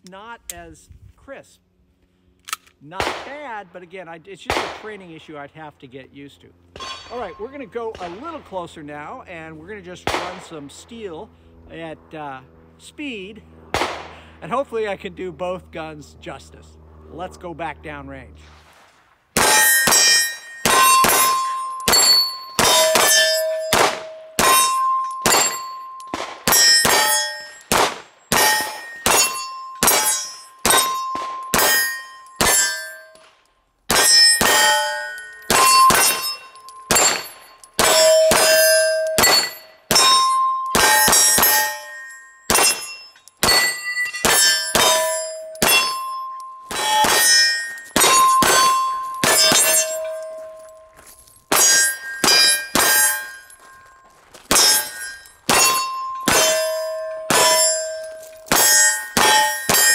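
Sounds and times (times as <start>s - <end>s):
pistol shots: 3.0s - 3.5s, 4.5s - 5.2s, 10.0s - 10.6s, 13.7s - 14.2s, 19.4s - 32.9s, 33.9s - 46.1s, 46.7s - 50.7s, 54.5s - 59.9s
steel plate ringing: 6.8s - 8.7s, 19.4s - 33.3s, 33.9s - 59.9s.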